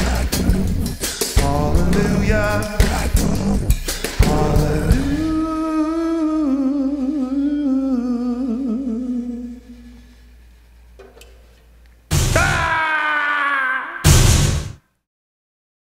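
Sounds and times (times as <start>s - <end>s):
voice holding long vibrato note: 0.0s - 10.2s.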